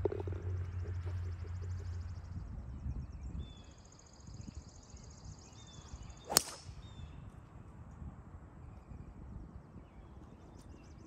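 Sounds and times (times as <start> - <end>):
golf ball crack: 6.2 - 6.9
golf club swish: 6.3 - 6.6.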